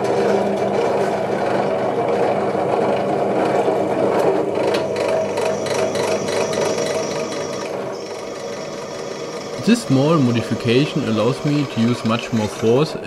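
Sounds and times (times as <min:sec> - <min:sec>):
drill press motor hum: 0:00.0 - 0:13.0
high thin whine: 0:04.9 - 0:12.8
drill bit scraping chatter: 0:04.9 - 0:13.0.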